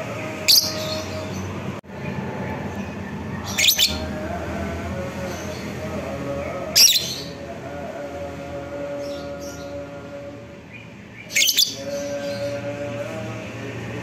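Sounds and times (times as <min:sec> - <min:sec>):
steady background noise: 0:00.0 - 0:14.0
high-pitched bird calls: 0:00.4 - 0:01.5, 0:03.4 - 0:04.2, 0:06.8 - 0:07.4, 0:10.7 - 0:12.6.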